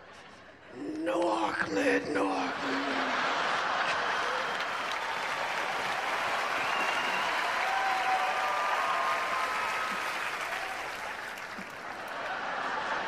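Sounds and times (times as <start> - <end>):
audience calls: 2.2 - 13.0
audience applauding: 2.6 - 13.0.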